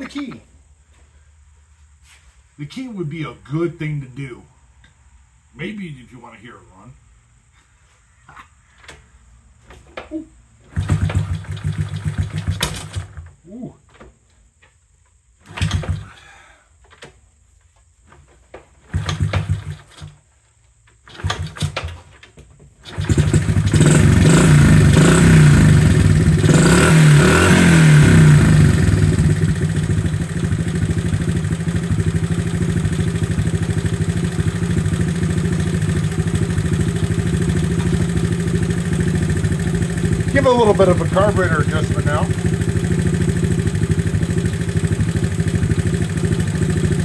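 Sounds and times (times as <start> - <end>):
small motorcycle engine starting and idling: 10.6 - 13.6, 15.4 - 17.2, 18.2 - 20.3, 20.9 - 47.0.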